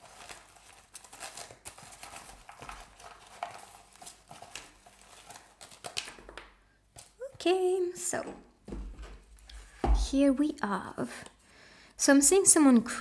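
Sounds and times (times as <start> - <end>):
paper stickers rustling: 0.0 - 7.4.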